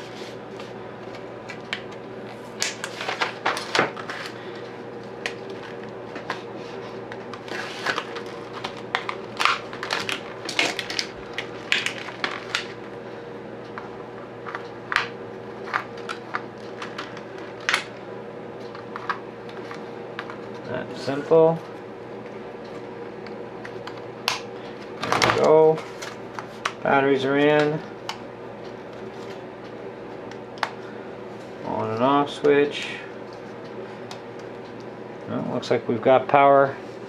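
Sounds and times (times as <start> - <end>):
steady low hum: 0.0 - 37.0
plastic blister pack crinkling: 7.4 - 12.8.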